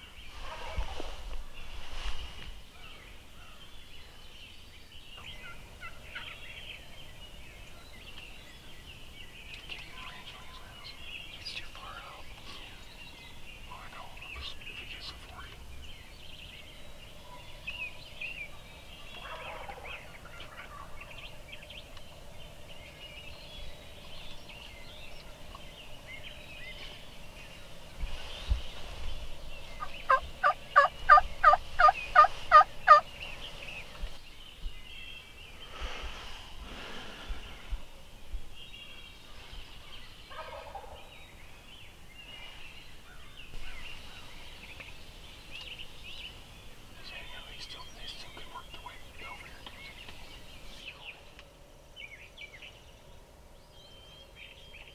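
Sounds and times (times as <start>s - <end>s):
wild turkey yelping: 19.1s - 21.2s, 30.1s - 33.0s, 40.3s - 41.1s.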